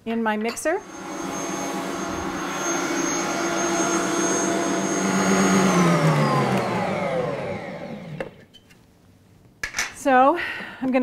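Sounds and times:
stand mixer motor whirring: 0.8s - 8.4s.

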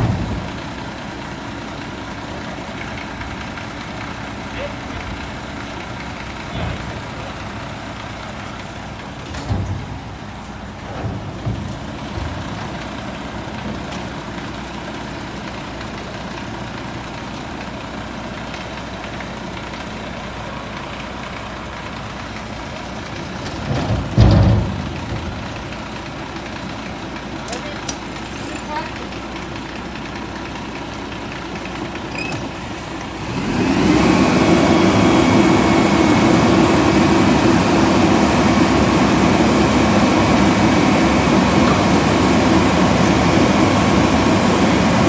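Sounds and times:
diesel engine idling: 0.0s - 45.0s
junk banging into metal container: 9.3s - 10.1s, 23.4s - 25.4s.

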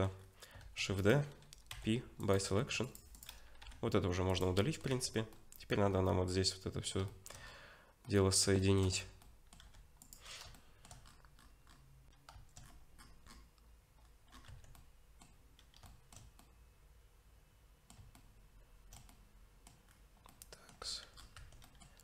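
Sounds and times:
keyboard and mouse clicks: 0.5s - 5.7s, 6.8s - 16.6s, 17.8s - 22.0s.

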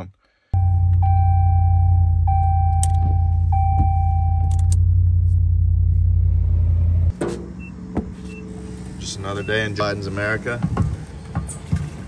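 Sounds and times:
dashboard warning chime: 0.6s - 4.7s.

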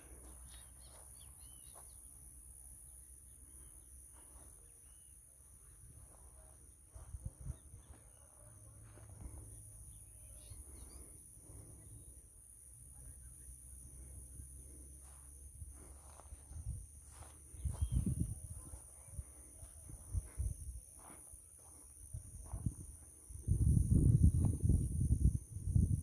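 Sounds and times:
high insect drone: 0.0s - 26.0s
bird chirps: 0.3s - 2.1s, 9.9s - 11.2s.

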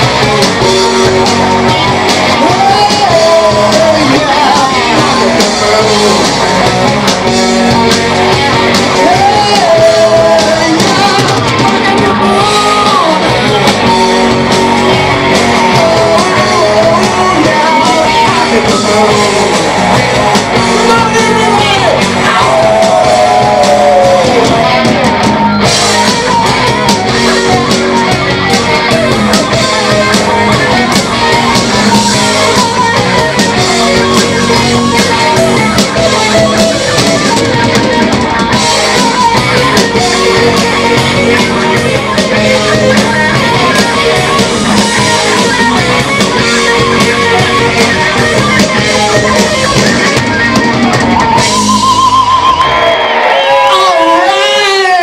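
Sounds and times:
rock band playing loud: 0.0s - 55.0s
falling pitch glide: 48.9s - 53.3s.

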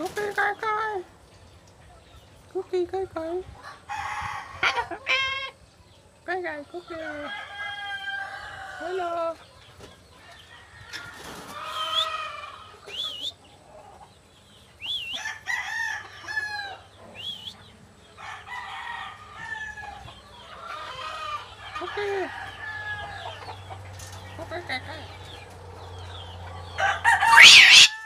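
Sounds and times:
cockatoo chattering calls: 27.2s - 28.0s
cockatoo high chirps: 27.3s - 28.0s.

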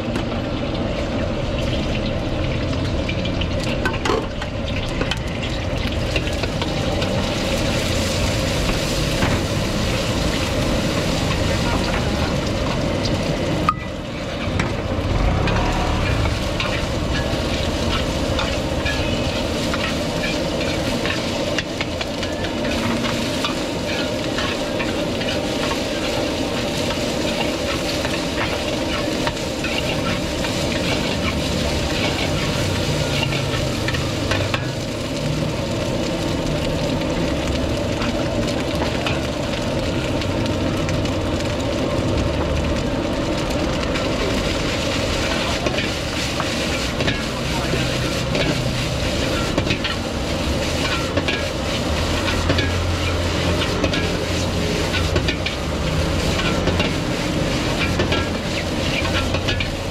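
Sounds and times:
egg and ham sizzling in a wok: 0.0s - 59.9s
metal spatula scraping a wok: 15.3s - 34.7s, 44.0s - 59.9s.

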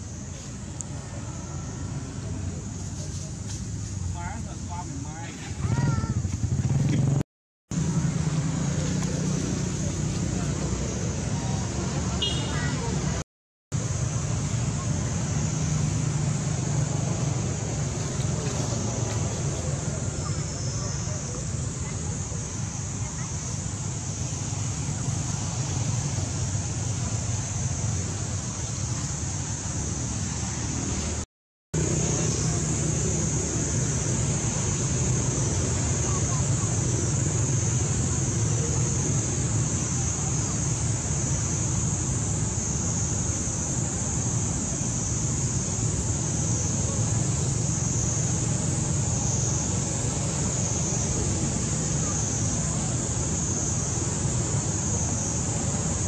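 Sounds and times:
constant high hiss: 0.0s - 56.0s.

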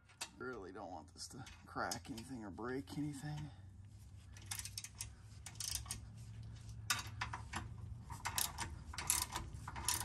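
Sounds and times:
ratchet wrench clicking: 8.1s - 10.0s.

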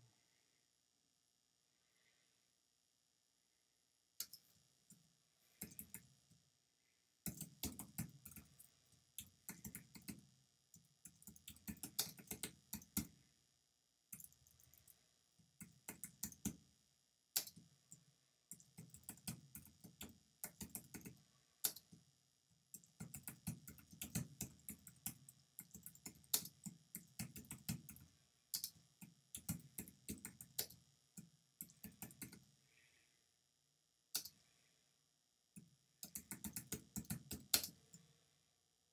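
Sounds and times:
computer keyboard typing: 5.6s - 6.1s, 7.2s - 13.2s, 14.1s - 15.0s, 15.6s - 16.6s, 18.5s - 21.9s, 22.7s - 30.8s, 31.6s - 32.4s, 36.0s - 37.8s.

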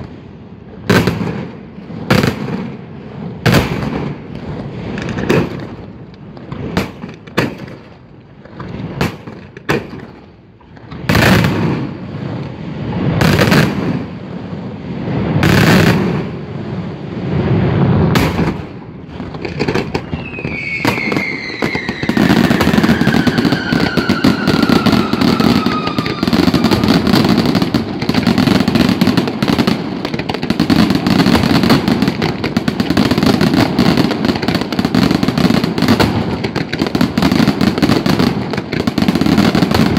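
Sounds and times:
rapid cracking firework barrage: 0.0s - 39.9s
whistling firework falling: 8.7s - 39.9s.

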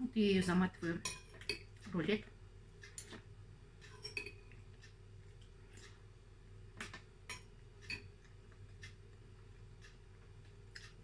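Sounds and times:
faint steady hum: 0.0s - 11.0s
metal spoon tapping bowl: 1.0s - 1.7s, 3.9s - 4.4s.

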